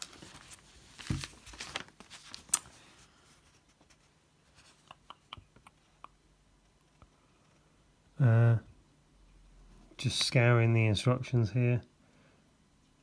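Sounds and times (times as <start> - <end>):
paper leaflet rustling: 0.0 - 4.8.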